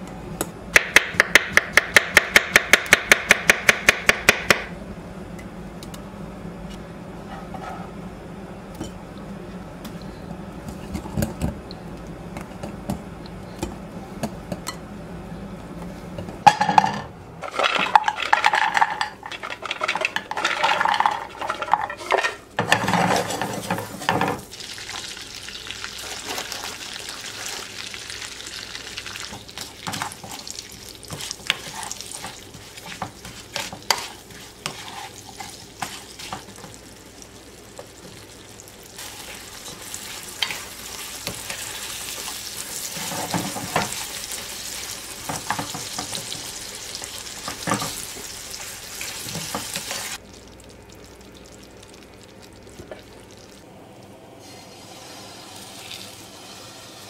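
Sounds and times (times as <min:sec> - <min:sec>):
spatula scraping a pan: 0:21.9 - 0:24.2, 0:31.1 - 0:36.7
food sizzling in a frying pan: 0:22.8 - 0:53.6, 0:54.4 - 0:57.0.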